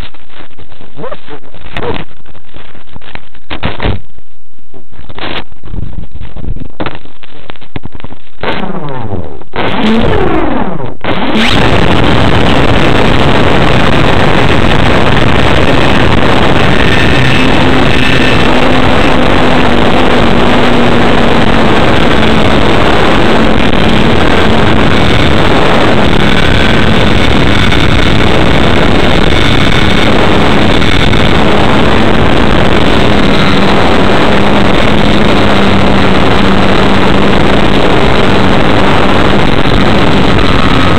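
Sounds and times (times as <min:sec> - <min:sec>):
faint steady hum: 0:00.0 - 0:40.9
wind on the microphone: 0:04.8 - 0:09.2, 0:11.0 - 0:40.9
model plane motor and propeller: 0:11.3 - 0:40.9.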